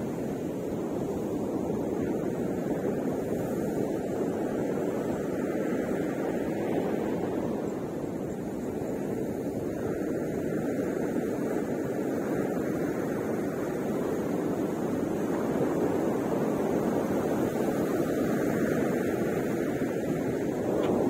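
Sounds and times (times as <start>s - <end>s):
ocean surf breaking: 13.6s - 21.0s.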